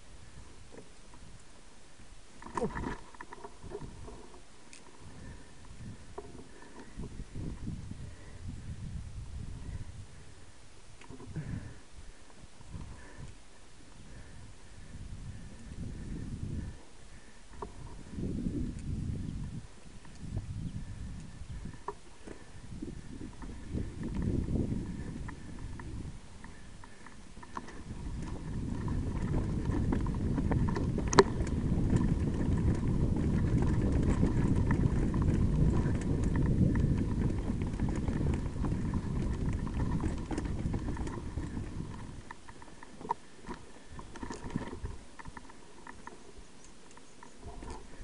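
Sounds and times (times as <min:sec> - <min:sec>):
bike tyre noise on trail: 0:00.0 - 0:48.0
wind rumble on microphone: 0:00.0 - 0:48.0
bike rattling clicks: 0:02.4 - 0:07.8, 0:19.8 - 0:48.0.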